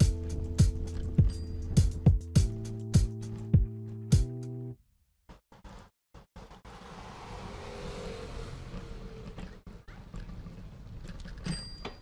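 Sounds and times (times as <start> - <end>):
car driving past: 6.4 - 9.8.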